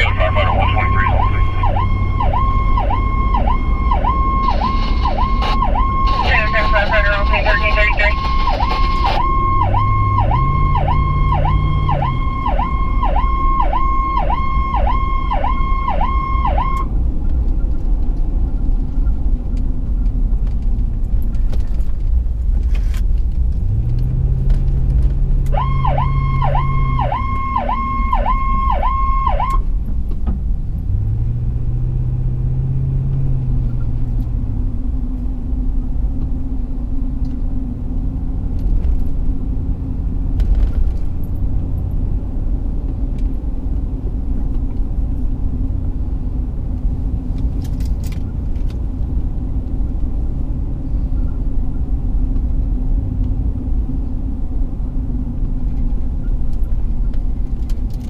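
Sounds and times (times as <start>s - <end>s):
electronic siren wailing: 0.0s - 16.9s, 25.5s - 29.6s
engine and road rumble: 0.0s - 58.0s.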